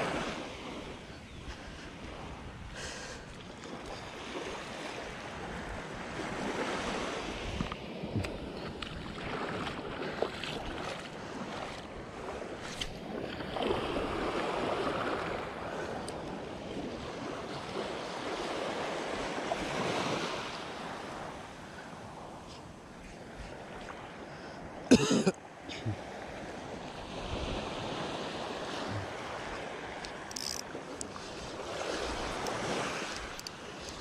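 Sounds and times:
waves washing onto sand: 0:00.0 - 0:34.0
wind on microphone: 0:05.1 - 0:10.2
faint clicks: 0:32.4 - 0:34.0.

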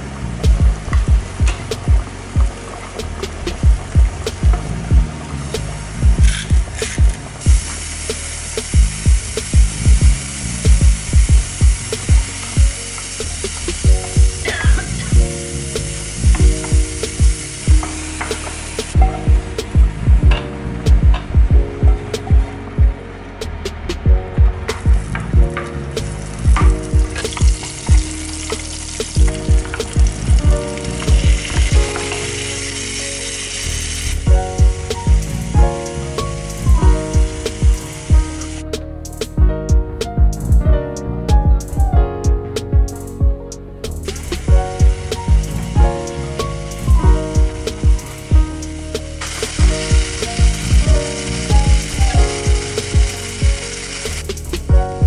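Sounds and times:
electronic music with kick drum: 0:00.0 - 0:32.5, 0:34.0 - 0:55.0
onions sizzling in oil: 0:06.3 - 0:19.0, 0:27.1 - 0:34.3, 0:47.5 - 0:51.9.

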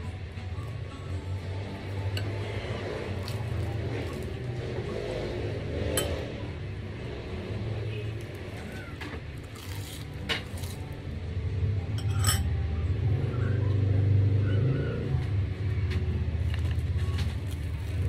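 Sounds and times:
chewing rice ball: 0:00.6 - 0:05.5, 0:07.7 - 0:11.1, 0:16.4 - 0:18.0
spoon clinking against bowl: 0:12.0 - 0:12.5.

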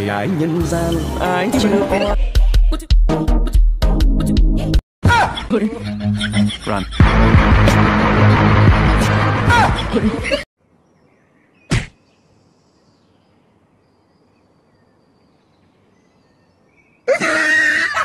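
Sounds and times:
music: 0:00.0 - 0:04.8, 0:05.8 - 0:10.4.

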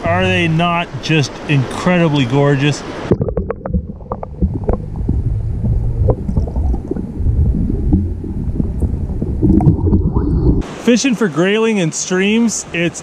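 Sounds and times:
muffled underwater stream gurgle: 0:02.8 - 0:10.8
underwater knocks and clicks: 0:03.1 - 0:10.6.

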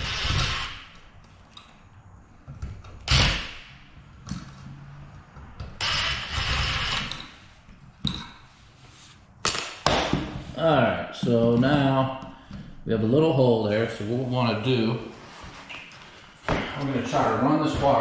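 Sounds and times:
tools scraping: 0:04.2 - 0:10.5.

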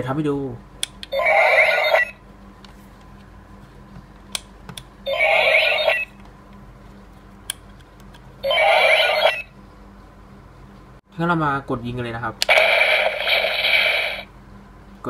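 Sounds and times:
electronic toy sound effect: 0:01.1 - 0:02.2, 0:05.1 - 0:06.2, 0:08.4 - 0:09.5, 0:12.5 - 0:14.3.

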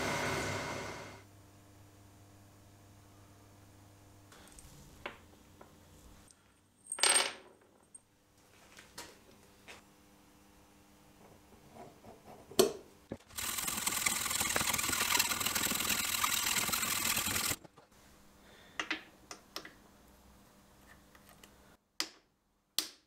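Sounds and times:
hacksaw cutting steel: 0:13.3 - 0:17.6.

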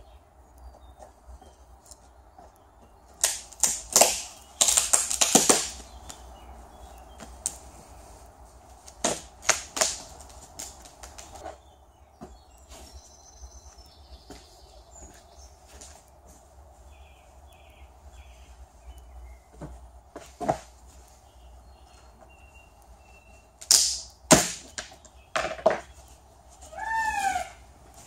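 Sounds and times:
fibreglass cracking and tapping: 0:03.1 - 0:06.2, 0:08.9 - 0:11.4, 0:23.6 - 0:26.0.

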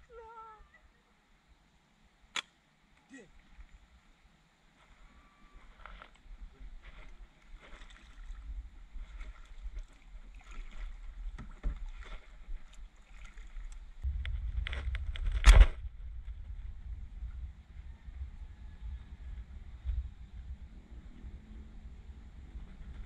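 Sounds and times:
wind rumble on microphone: 0:05.7 - 0:23.0
paddle dipping and dripping: 0:07.3 - 0:14.0.

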